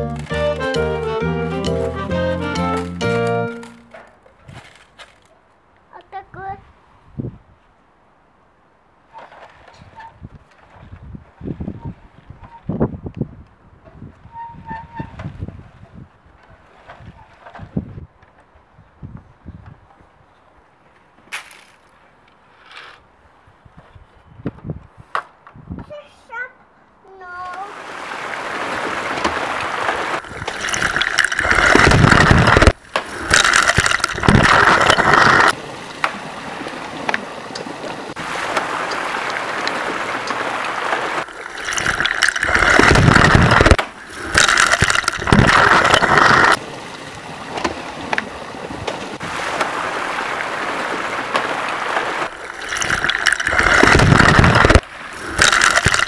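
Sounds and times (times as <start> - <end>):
water splashing and rushing: 0.0 - 4.1, 27.6 - 56.0.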